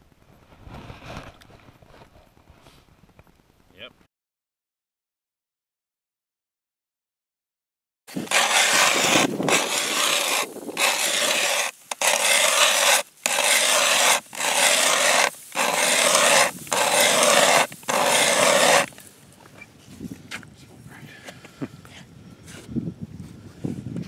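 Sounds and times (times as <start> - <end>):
ice auger grinding through ice: 8.1 - 19.0.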